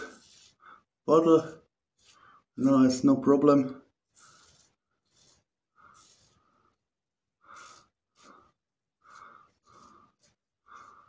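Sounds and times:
razor scratching through stubble: 0:01.3 - 0:02.9, 0:03.9 - 0:06.8, 0:07.4 - 0:11.0.

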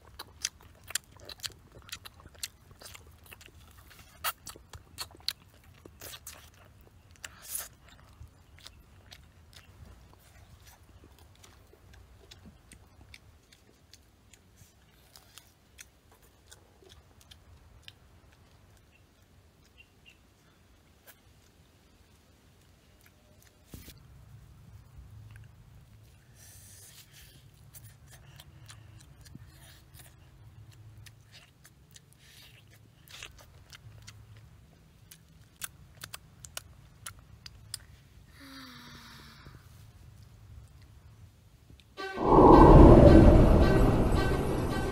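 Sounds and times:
chewing: 0:00.0 - 0:38.3.

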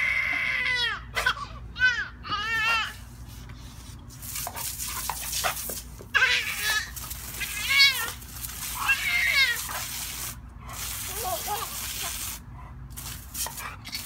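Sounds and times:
garden hose spray hiss: 0:04.1 - 0:14.0.

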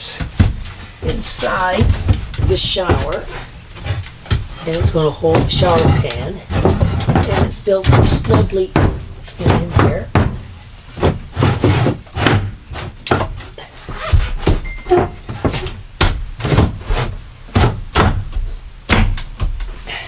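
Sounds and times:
wooden frame knocking and thudding: 0:00.0 - 0:13.4, 0:17.5 - 0:19.6.

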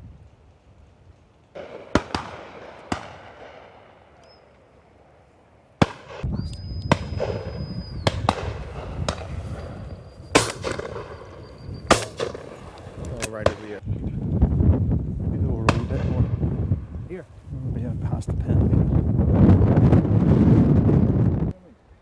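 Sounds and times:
wind rumble on microphone: 0:00.0 - 0:01.4, 0:06.1 - 0:22.0
shotgun shots echoing: 0:01.6 - 0:04.2, 0:05.8 - 0:06.3, 0:06.9 - 0:13.8
steady high whistle: 0:06.2 - 0:08.3, 0:09.4 - 0:12.1.

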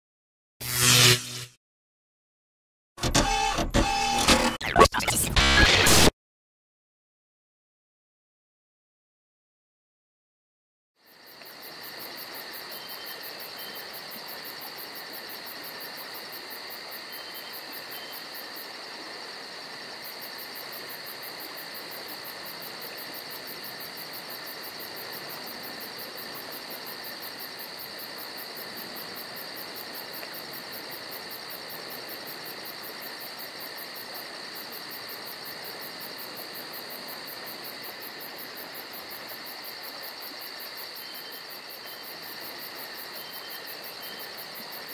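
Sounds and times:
crickets chirping: 0:11.0 - 0:44.9.

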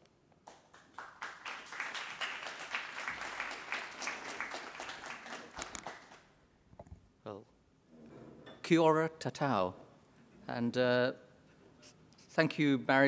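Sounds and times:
audience applauding: 0:00.4 - 0:06.3.

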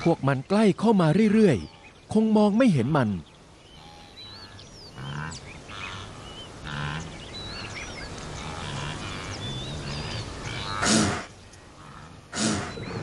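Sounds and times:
small birds chirping: 0:00.0 - 0:13.0
wildebeest grunting calls: 0:03.7 - 0:07.3, 0:08.2 - 0:13.0.

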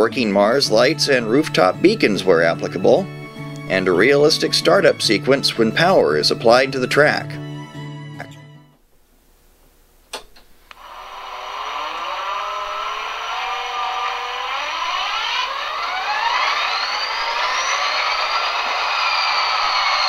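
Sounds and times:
diesel engine sound from small speaker: 0:11.9 - 0:20.0.

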